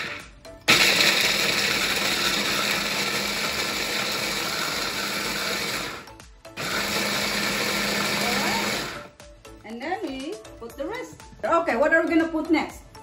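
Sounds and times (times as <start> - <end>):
stick blender grinding nuts: 0.0 - 9.1.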